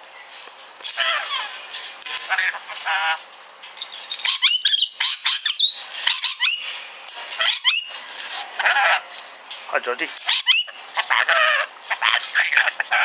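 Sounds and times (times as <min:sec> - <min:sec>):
lorikeet squeaky calls: 0:04.2 - 0:06.7, 0:07.4 - 0:08.0, 0:10.2 - 0:13.0.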